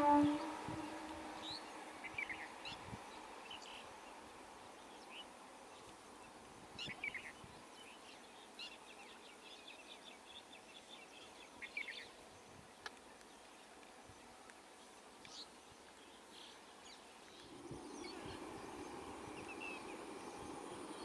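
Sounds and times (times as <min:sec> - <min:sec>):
electric train rumble: 0:00.0 - 0:02.5, 0:17.4 - 0:21.0
faint background noise: 0:00.0 - 0:21.0.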